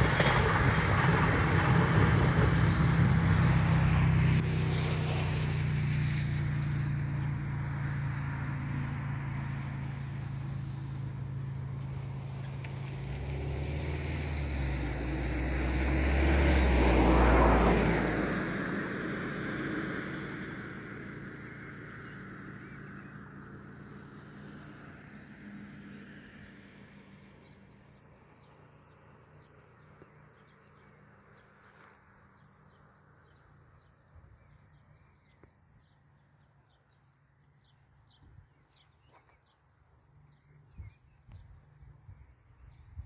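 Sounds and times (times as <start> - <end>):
train rumble: 0.0 - 5.5
birds chirping: 21.4 - 43.0.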